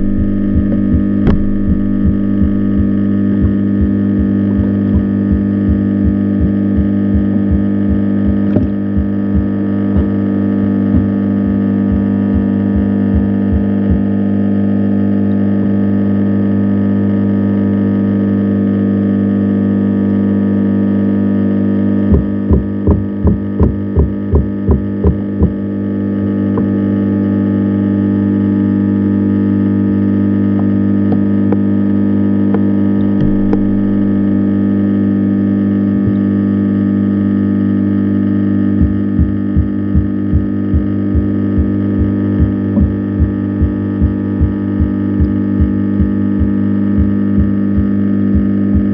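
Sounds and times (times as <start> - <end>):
evenly spaced thumps: 0.0 - 10.1, 32.6 - 34.6
electrical hum: 0.0 - 48.9.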